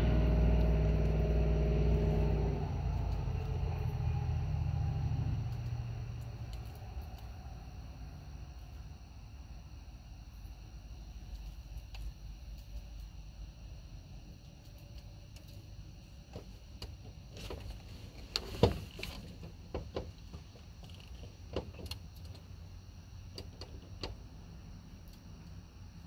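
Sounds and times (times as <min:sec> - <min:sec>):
low rumble: 0:00.0 - 0:09.1
steady high-pitched hum: 0:00.0 - 0:26.0.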